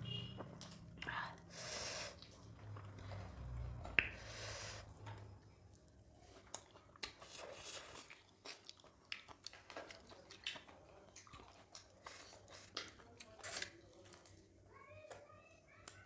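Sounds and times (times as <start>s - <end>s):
chewing and lip-smacking: 5.7s - 14.4s.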